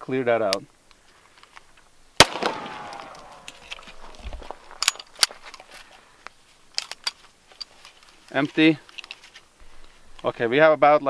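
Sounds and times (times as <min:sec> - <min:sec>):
pistol shot ringing: 0:02.2 - 0:03.6
sharp metallic clicks of pistol: 0:02.2 - 0:03.9.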